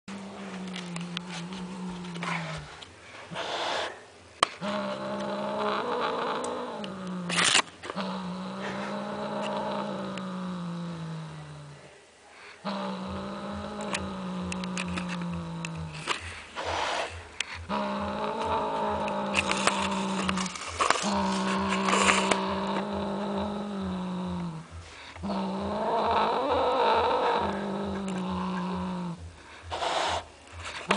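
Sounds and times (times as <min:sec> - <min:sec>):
cat growling: 0:00.1 - 0:12.0, 0:12.6 - 0:30.9
cat hissing: 0:00.4 - 0:04.0, 0:12.4 - 0:24.6, 0:25.2 - 0:30.9.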